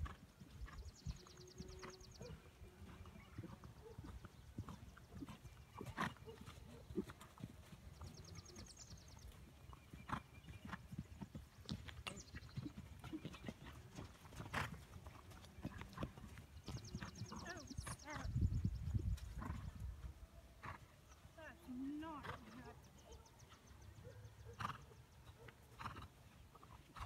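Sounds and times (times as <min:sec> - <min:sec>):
horse hoofbeats on sand: 0:02.2 - 0:20.8.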